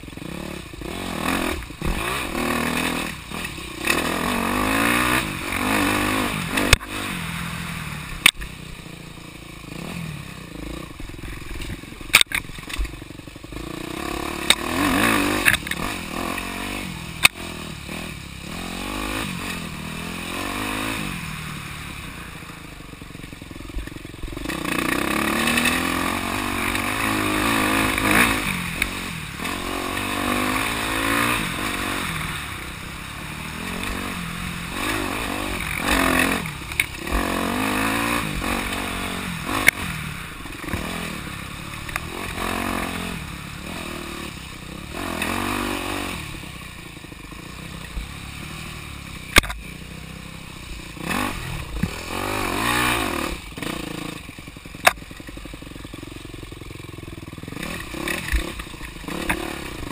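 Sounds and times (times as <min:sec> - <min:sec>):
dirt bike engine revving: 0:00.0 - 0:59.9
sharp knocks from bike: 0:49.3 - 0:49.6, 0:54.8 - 0:55.2.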